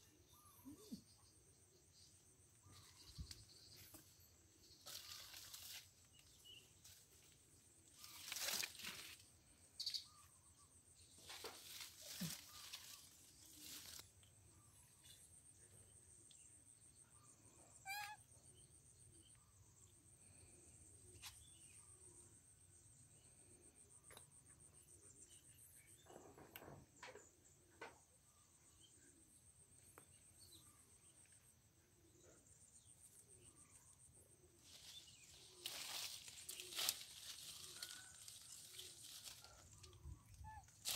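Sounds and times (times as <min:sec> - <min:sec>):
rustles of leaves and twigs: 0:02.6 - 0:15.3, 0:34.0 - 0:40.9.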